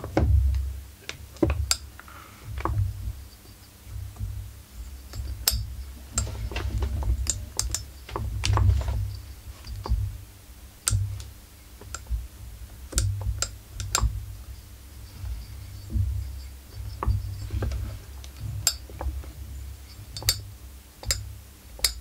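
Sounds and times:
metal and plastic clicks and knocks: 0:05.1 - 0:10.2, 0:10.8 - 0:14.3, 0:15.3 - 0:19.3, 0:19.9 - 0:22.0.

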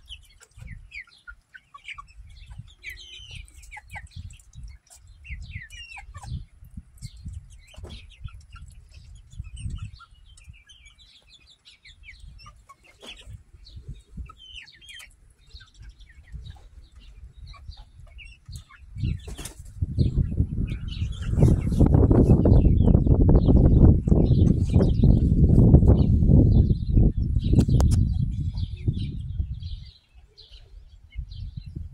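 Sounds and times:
hens chirping and clucking: 0:00.0 - 0:31.9
loud rumbling on microphone: 0:19.8 - 0:29.9.

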